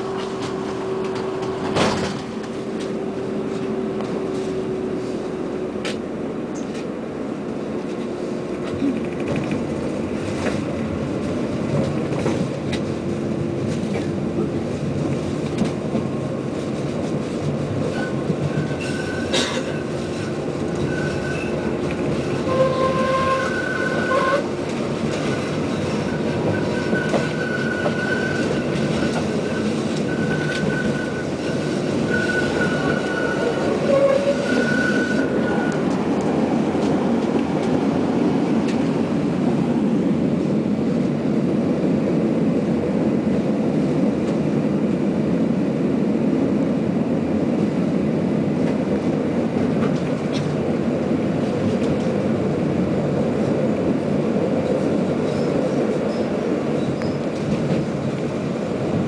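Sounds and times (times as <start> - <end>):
tram wheels rumbling on rails: 0.0 - 59.0
high wheel squeals: 17.9 - 24.6, 25.2 - 36.0.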